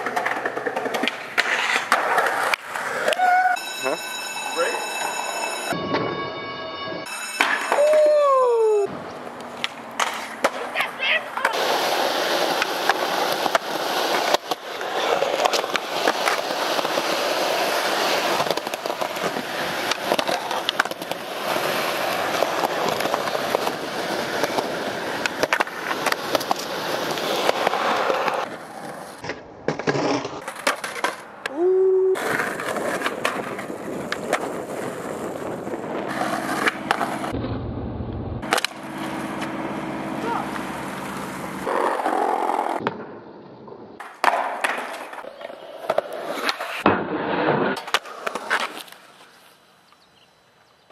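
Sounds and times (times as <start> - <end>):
skateboard popping and landing: 0.0 - 3.3, 9.5 - 31.6, 32.2 - 37.4, 38.4 - 39.6, 40.5 - 49.0
skateboard wheels rolling on concrete: 0.0 - 50.9.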